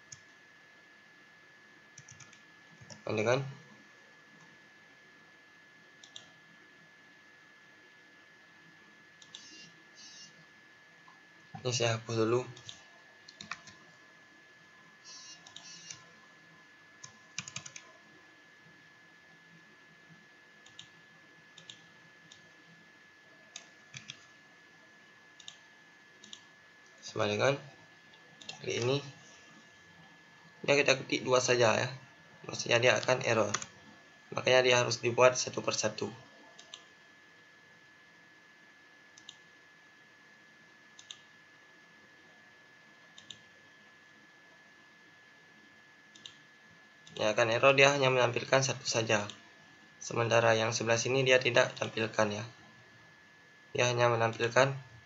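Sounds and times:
thin steady whine: 0.0 - 55.0
computer mouse clicks: 2.0 - 3.0, 6.0 - 6.4, 9.2 - 10.3, 12.6 - 13.8, 15.1 - 16.1, 17.0 - 17.9, 20.6 - 21.0, 21.6 - 22.5, 23.5 - 24.3, 25.4 - 25.6, 26.2 - 26.5, 28.4 - 28.9, 33.5 - 33.7, 36.6 - 36.9, 39.2 - 39.5, 41.0 - 41.3, 43.2 - 43.5, 46.1 - 46.4.

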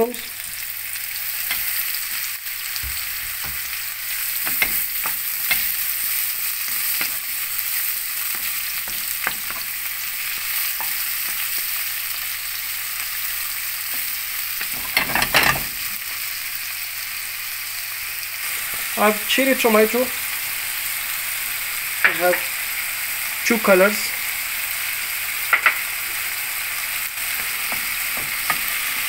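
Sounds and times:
vegetables sizzling in oil: 0.0 - 29.0
utensil stirring in pan: 0.2 - 16.0, 25.5 - 29.0.

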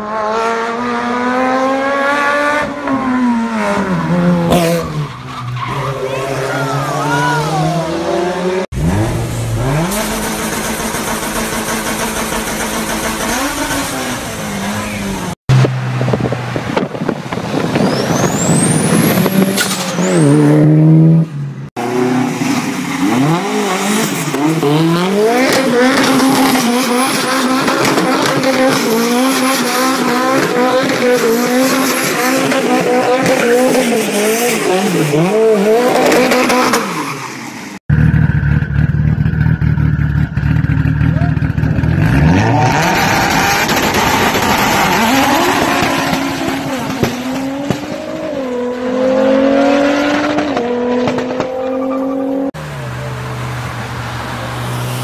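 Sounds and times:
car engine revving hard: 6.4 - 16.9, 17.8 - 37.0, 41.7 - 52.6.

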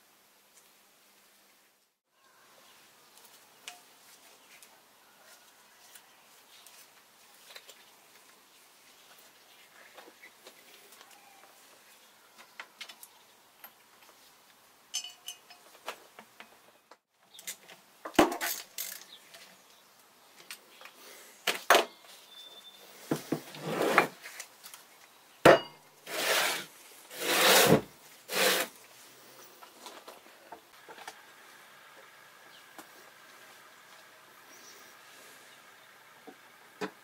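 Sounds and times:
metal scraping across bench: 23.1 - 24.2, 26.1 - 28.7.

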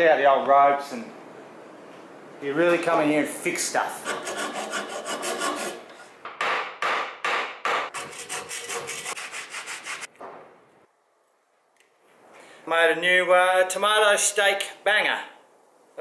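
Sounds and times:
hand file rasping wood: 4.0 - 6.0, 7.9 - 10.1.

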